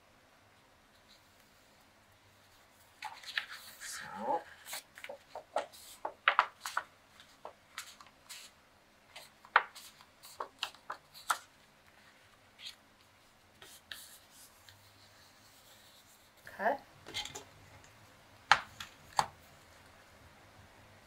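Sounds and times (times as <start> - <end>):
paper crinkling and rustling: 2.8 - 16.2.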